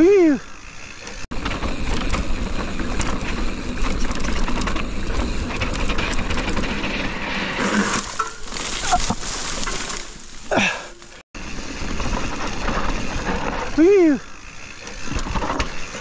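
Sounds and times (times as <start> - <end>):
bike rattling: 0.0 - 16.0
tyres scraping on loose dirt: 0.4 - 16.0
tyres crunching over rock: 7.6 - 11.2.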